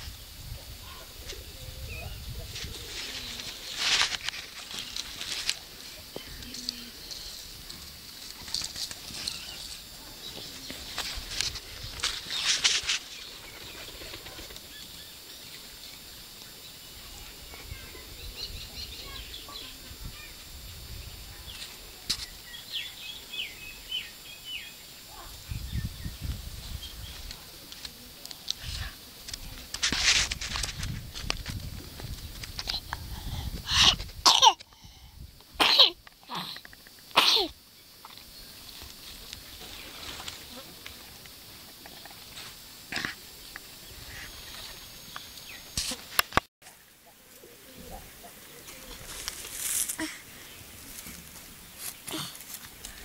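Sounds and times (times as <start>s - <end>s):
background hiss: 0.0s - 53.0s
small birds chirping: 0.8s - 28.6s
small ticks: 36.0s - 37.2s.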